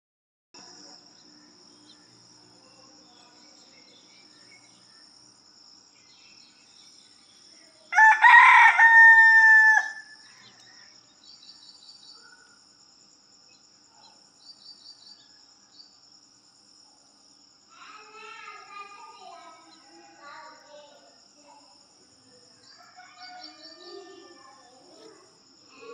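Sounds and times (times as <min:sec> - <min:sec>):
bird chirps: 0:00.6 - 0:05.2, 0:05.9 - 0:08.1, 0:09.1 - 0:12.6, 0:13.4 - 0:16.0, 0:22.6 - 0:24.3
rooster crowing: 0:07.9 - 0:10.8, 0:22.7 - 0:24.4.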